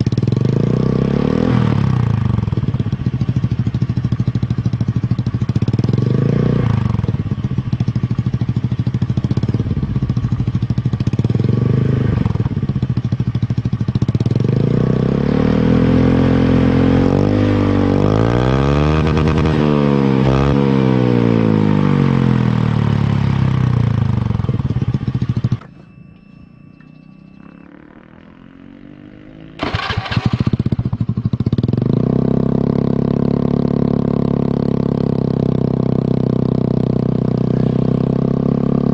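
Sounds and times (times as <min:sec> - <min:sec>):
scooter engine revving: 0:00.0 - 0:25.7, 0:27.2 - 0:38.9.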